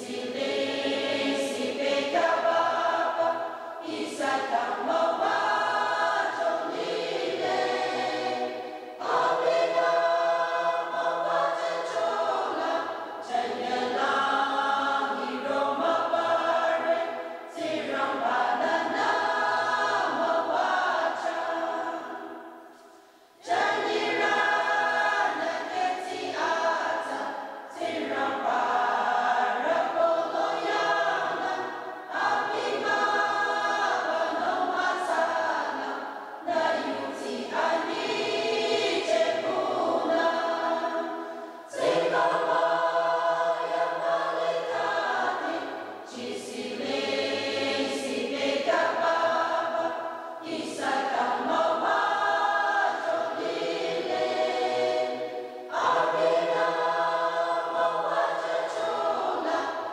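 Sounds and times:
choir singing a hymn: 0.0s - 59.9s
singers breathing: 22.7s - 23.4s, 41.2s - 41.7s.

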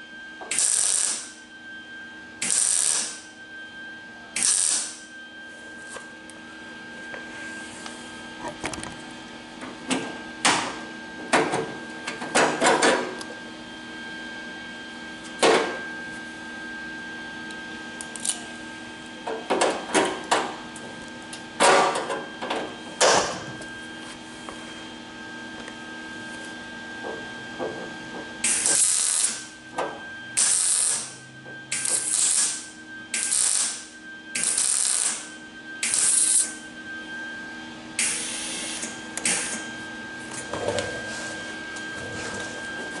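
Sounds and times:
welding crackle: 0.5s - 1.3s, 2.4s - 3.2s, 4.4s - 5.0s, 28.4s - 29.5s, 30.4s - 31.1s, 31.7s - 32.6s, 33.2s - 36.5s.

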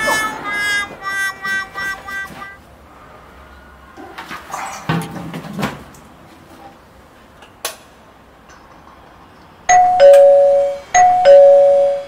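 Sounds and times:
two-tone doorbell chime: 9.7s - 12.0s.

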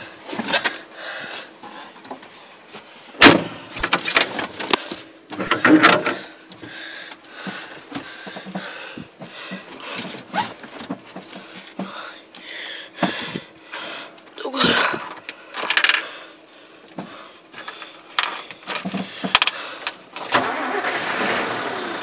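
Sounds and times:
tractor engine humming: 20.3s - 22.0s.

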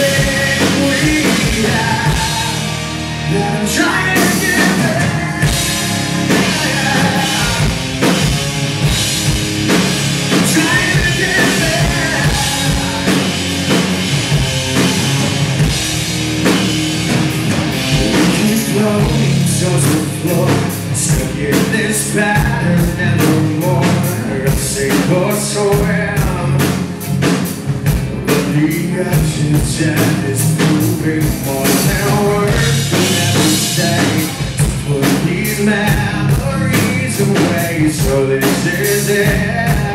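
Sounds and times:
man singing lead vocal: 0.0s - 8.4s, 10.3s - 13.9s, 17.9s - 27.3s, 28.1s - 39.9s
distorted electric guitars: 0.0s - 39.9s
drum kit: 0.0s - 39.9s.

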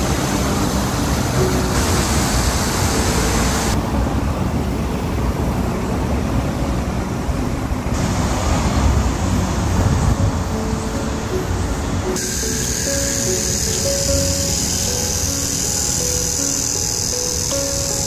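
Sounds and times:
rain hissing on wet ground: 0.0s - 3.8s
low rumble of city traffic: 0.0s - 18.0s.

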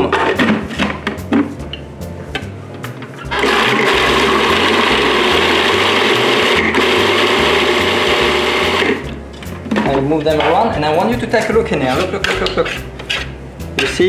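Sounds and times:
food processor running: 3.3s - 9.0s.

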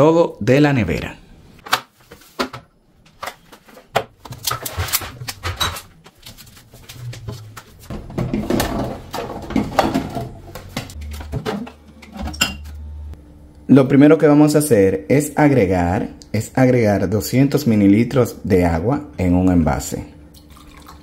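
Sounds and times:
plastic containers clattering: 1.7s - 12.7s.

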